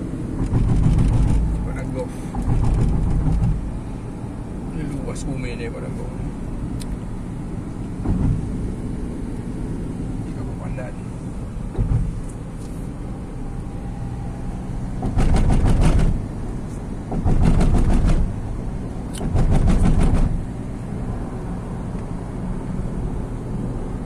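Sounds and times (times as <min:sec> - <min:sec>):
road and engine noise inside car: 0:00.0 - 0:24.0
tyres drumming on rumble strips: 0:00.4 - 0:03.8, 0:08.0 - 0:08.6, 0:11.7 - 0:12.3, 0:15.0 - 0:16.2, 0:17.1 - 0:18.4, 0:19.2 - 0:20.5.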